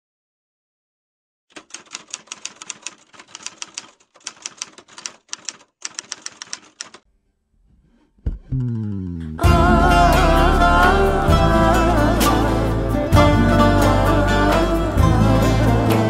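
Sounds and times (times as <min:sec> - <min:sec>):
typewriter keys clacking: 0:01.5 - 0:07.0.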